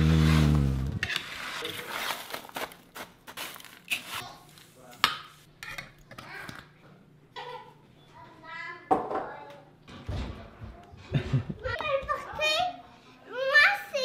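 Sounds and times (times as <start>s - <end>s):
granola rustling and pouring: 0.0s - 4.2s.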